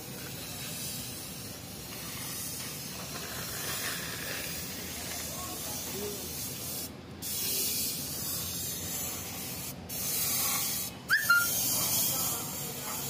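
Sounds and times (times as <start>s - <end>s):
paint spray gun hissing: 0.1s - 13.0s
short high chirp: 11.1s - 11.5s.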